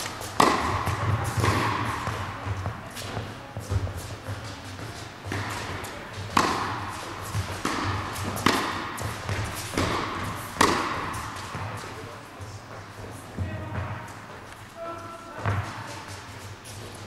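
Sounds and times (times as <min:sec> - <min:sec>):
tennis racket strikes: 0:00.0 - 0:12.0
tennis ball bouncing: 0:00.0 - 0:14.4, 0:15.3 - 0:17.0.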